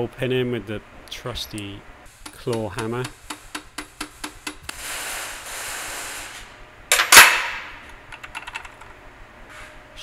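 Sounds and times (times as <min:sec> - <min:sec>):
hammer tapping a metal pin: 0:02.2 - 0:04.6.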